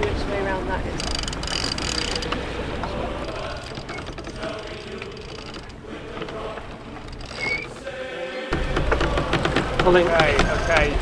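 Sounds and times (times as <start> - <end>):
sea noise: 0.0 - 11.0
wind: 0.0 - 11.0
winch pawls clicking: 1.0 - 8.0
short rising squeak: 3.4 - 5.6, 7.1 - 7.8.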